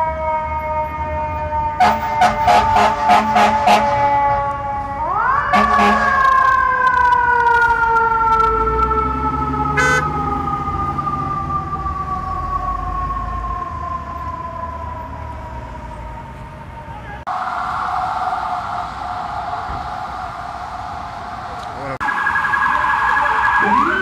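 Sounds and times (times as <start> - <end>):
mechanical siren wailing: 0.0 - 24.0
steady-pitch siren: 0.0 - 24.0
horn blast: 1.8 - 4.0, 5.5 - 6.3, 9.8 - 10.1
low engine rumble: 14.4 - 22.0.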